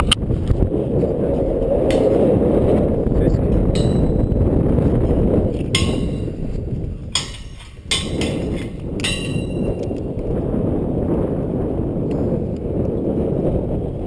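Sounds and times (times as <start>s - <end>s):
wind rumble on microphone: 0.0s - 14.0s
metal hardware clanking on steel: 3.7s - 4.3s, 5.7s - 6.4s, 7.1s - 9.9s.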